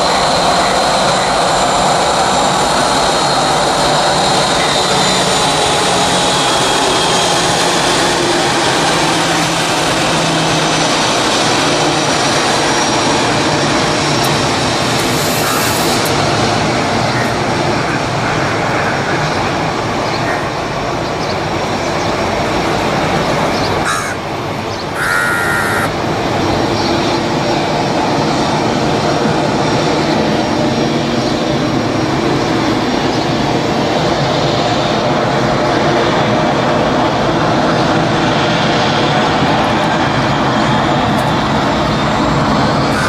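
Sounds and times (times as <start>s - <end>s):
jet engine taxiing: 0.0s - 43.0s
crow cawing: 23.8s - 24.2s, 25.0s - 25.9s.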